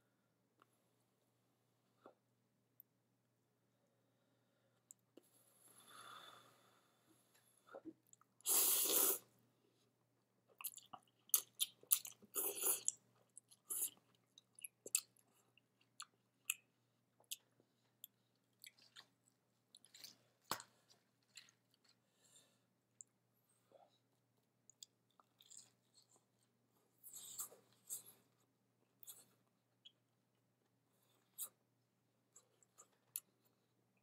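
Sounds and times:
person slurping noodles: 8.4s - 9.3s, 12.3s - 12.9s.

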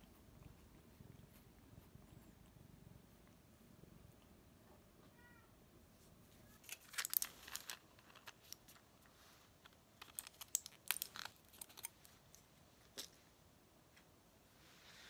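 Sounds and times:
cat meowing: 5.0s - 5.5s
blister pack clicking: 6.6s - 8.8s, 10.0s - 12.0s.

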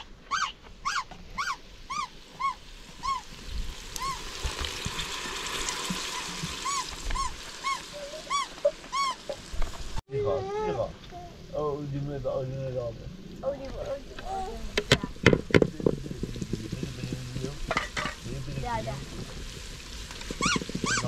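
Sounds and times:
dog whimpering: 0.0s - 3.2s, 6.7s - 9.4s
faint hiss: 1.2s - 21.0s.

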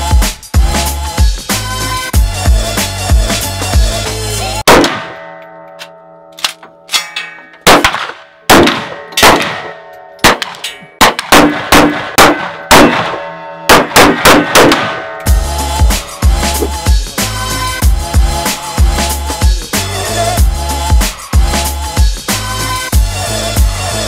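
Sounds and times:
rifle shots: 4.7s - 5.3s, 7.6s - 15.1s
bullets clanging on steel targets: 4.8s - 15.3s.

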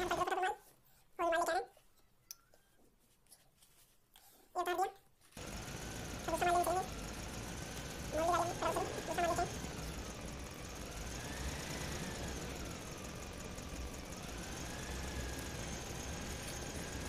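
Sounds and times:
engine running with low rumble: 5.4s - 17.0s
faint engine whine: 5.4s - 17.0s.

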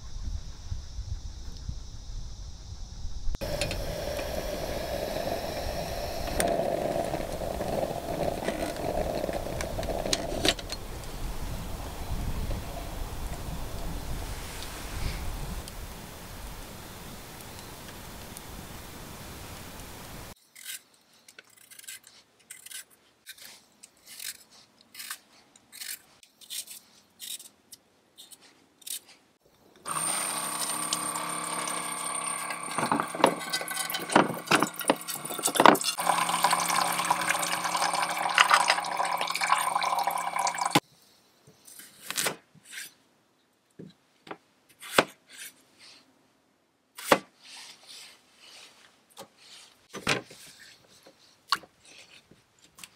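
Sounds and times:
pump whine: 3.4s - 13.4s, 29.8s - 40.8s
water pouring into metal pot: 32.2s - 40.8s.

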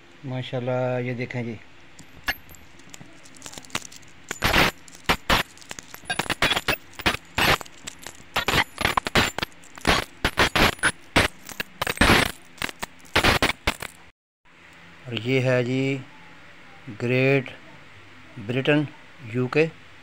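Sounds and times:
coins clinking: 2.0s - 14.1s.

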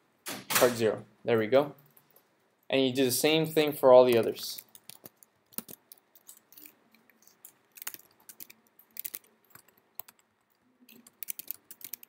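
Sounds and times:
computer keyboard keystrokes: 4.2s - 10.3s, 10.9s - 12.0s.

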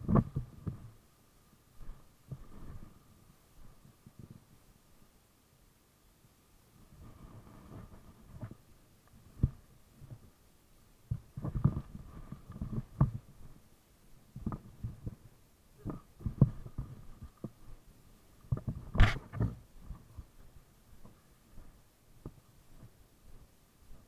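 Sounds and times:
bike camera knocks and thumps: 18.5s - 19.5s.

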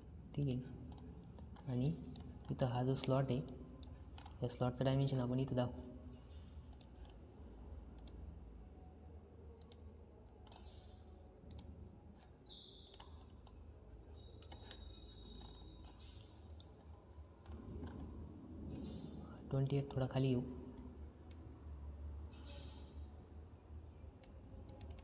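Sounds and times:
computer mouse clicking: 0.0s - 4.6s, 6.7s - 7.2s, 7.9s - 8.3s, 9.6s - 11.8s, 12.5s - 20.0s, 24.2s - 25.0s
faint low hum: 0.0s - 25.0s.

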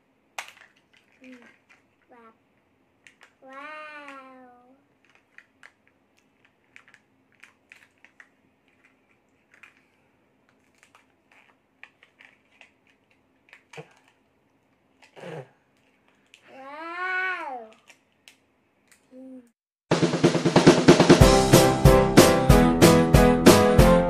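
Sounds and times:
plastic clicks and ticks: 3.0s - 4.4s.

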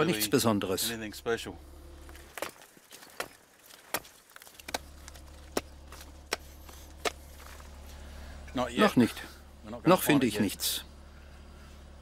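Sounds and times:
low steady hum: 0.0s - 12.0s
hand pick striking rock: 2.3s - 7.6s.

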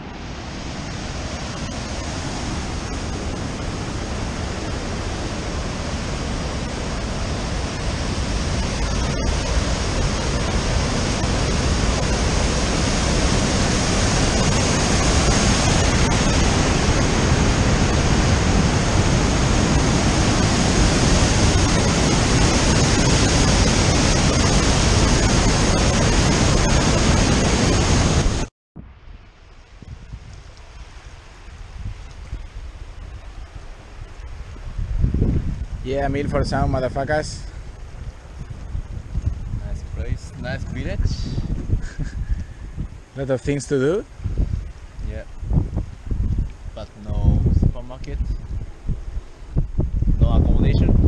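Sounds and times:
river rushing over rocks: 0.0s - 28.5s.

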